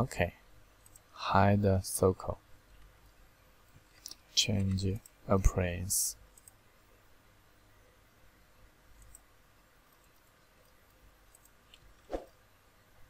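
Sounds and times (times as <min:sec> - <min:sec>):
computer mouse clicks: 0:00.8 - 0:01.1, 0:06.3 - 0:06.6, 0:09.0 - 0:09.3, 0:09.9 - 0:12.2.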